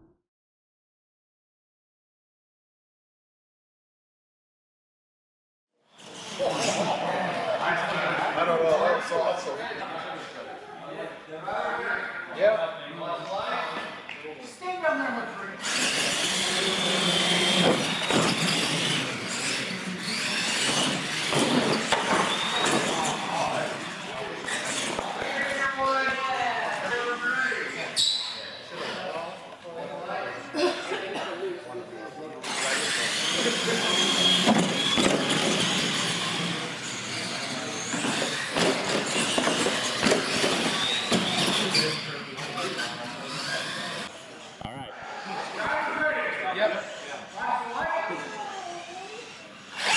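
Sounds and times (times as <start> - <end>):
electric motors whining: 15.4 - 27.5, 32.4 - 44.5, 45.1 - 49.9.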